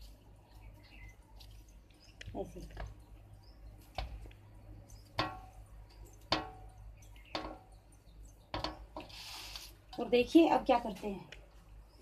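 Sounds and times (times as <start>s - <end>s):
dough dropped onto steel plate: 5.1s - 5.6s, 6.2s - 7.7s, 8.5s - 9.0s.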